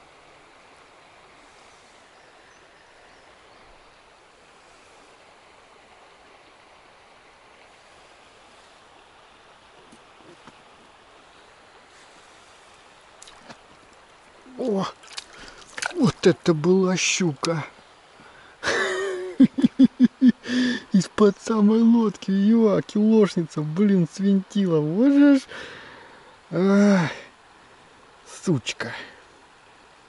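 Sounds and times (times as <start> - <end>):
river water flowing: 0.0 - 30.0.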